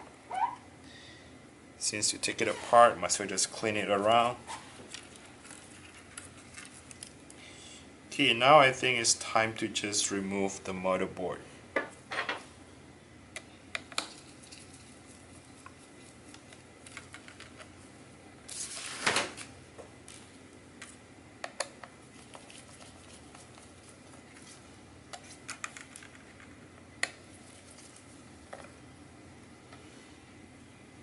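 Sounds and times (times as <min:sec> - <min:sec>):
rustling scrape: 0:02.4 - 0:02.8, 0:18.5 - 0:19.1.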